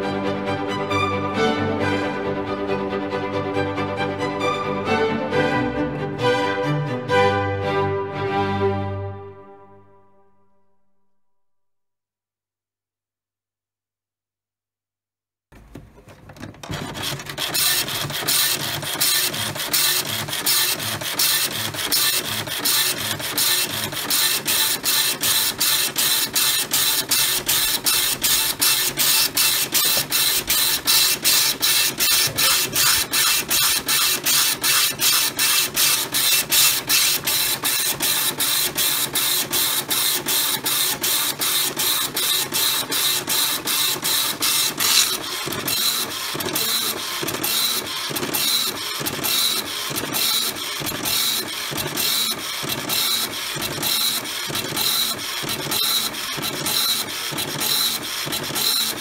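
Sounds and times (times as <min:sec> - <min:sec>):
dot-matrix printer printing: 0:15.7 - 0:59.0.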